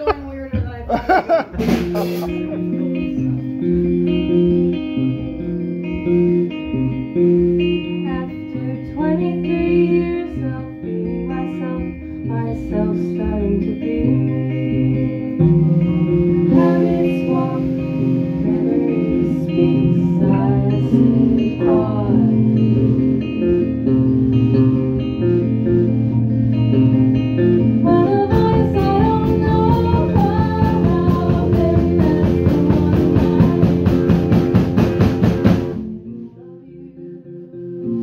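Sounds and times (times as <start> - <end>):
bass guitar: 0.0 - 38.0
electric guitar: 0.0 - 38.0
person singing: 1.0 - 3.7, 7.7 - 23.2, 27.8 - 34.3, 35.8 - 38.0.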